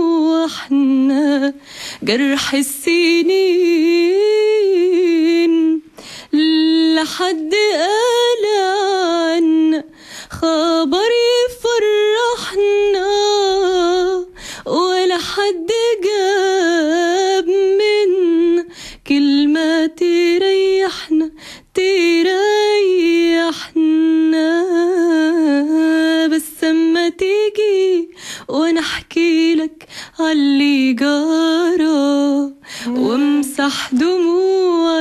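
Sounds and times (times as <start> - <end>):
woman singing unaccompanied: 0.0 - 35.0.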